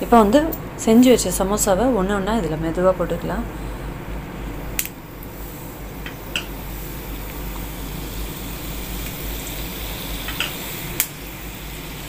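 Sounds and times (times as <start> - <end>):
food deep-frying in oil: 5.4 - 12.0.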